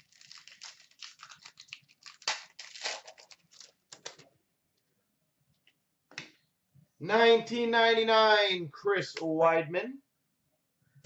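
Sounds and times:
foil wrapper tearing and crinkling: 0.0s - 4.2s.

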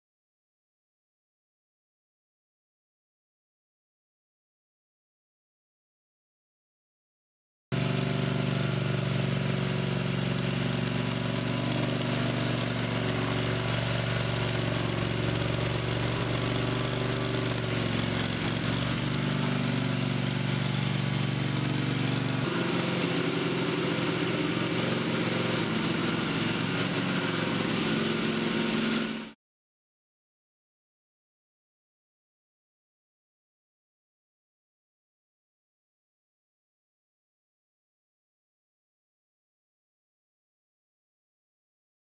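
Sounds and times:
concrete floor grinder running: 7.8s - 29.4s.

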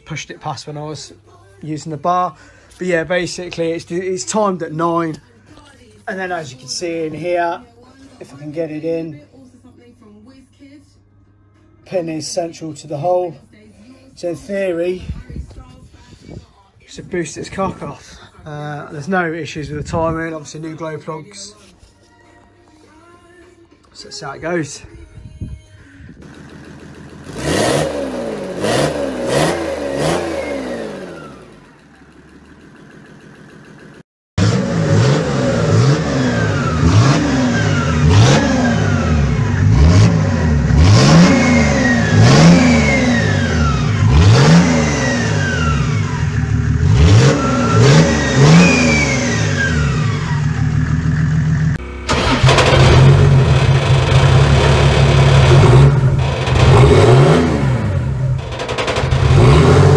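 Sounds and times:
diesel engine revving: 26.2s - 59.9s.

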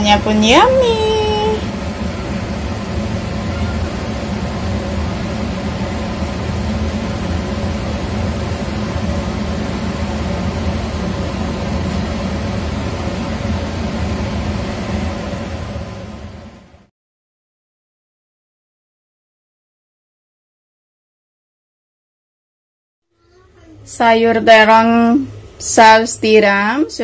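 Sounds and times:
steady mechanical hum: 0.0s - 16.9s, 23.2s - 27.0s.

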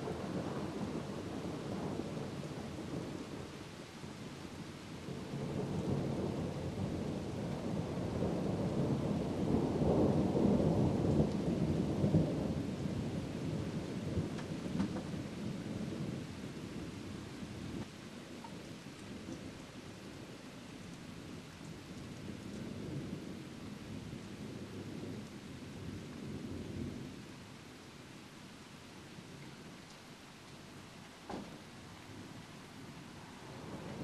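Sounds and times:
steady rain: 0.0s - 34.0s
rolling thunder: 5.1s - 16.9s, 33.2s - 34.0s.

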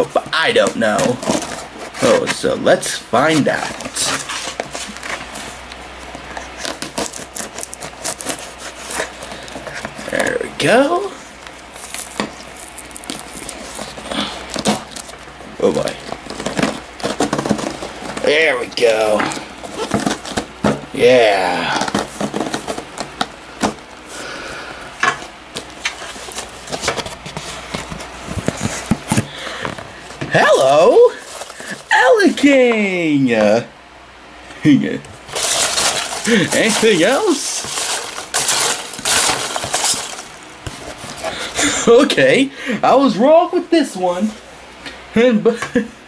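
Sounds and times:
rustling scrape: 3.3s - 10.2s, 25.2s - 29.8s, 35.2s - 41.5s
knife scraping packing tape: 6.4s - 9.9s
cardboard box being handled: 15.8s - 20.8s, 35.3s - 41.3s
cardboard box being torn open: 35.3s - 40.4s.

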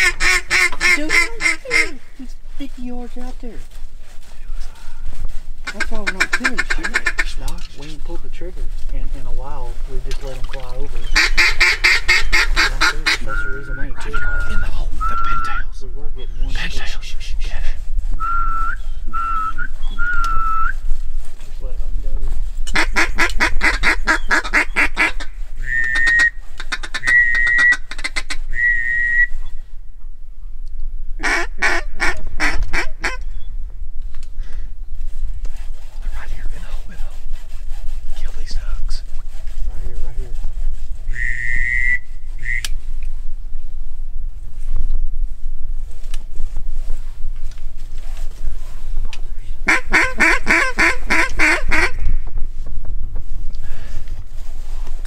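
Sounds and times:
mallard quacks: 0.0s - 2.0s, 5.7s - 7.3s, 11.2s - 13.3s
duck call quacks: 0.0s - 2.2s, 5.7s - 7.4s, 11.2s - 13.6s, 22.7s - 28.7s, 31.2s - 33.2s, 41.1s - 42.7s, 49.6s - 52.0s
wind rumble on microphone: 0.0s - 55.0s
short whistle notes: 25.6s - 26.4s, 27.0s - 27.9s, 28.5s - 29.6s, 41.1s - 42.8s.

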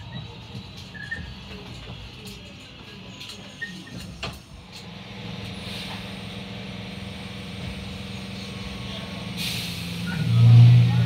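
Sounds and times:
train traction hum: 0.0s - 11.0s.

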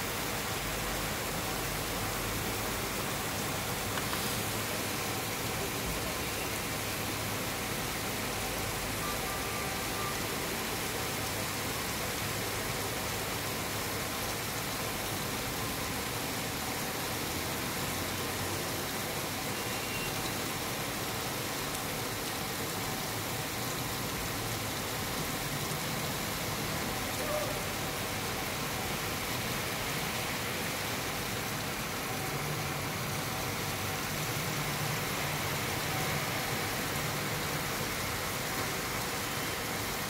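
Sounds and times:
heavy rain falling: 0.0s - 40.0s.

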